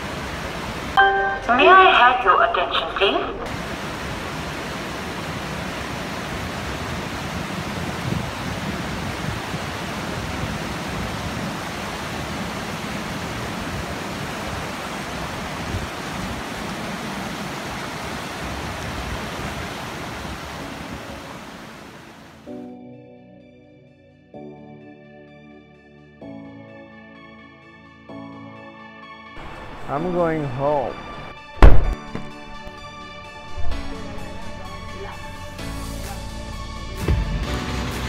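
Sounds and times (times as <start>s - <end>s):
rocky mountain river rushing: 2.9s - 22.4s, 29.4s - 35.6s.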